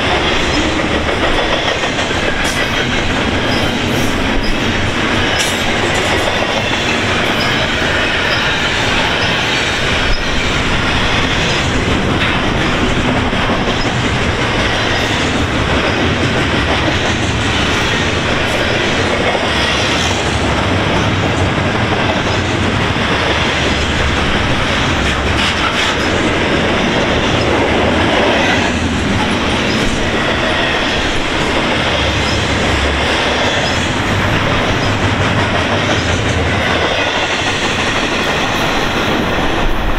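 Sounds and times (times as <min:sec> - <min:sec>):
freight train wheels clattering: 0:00.0 - 0:39.9.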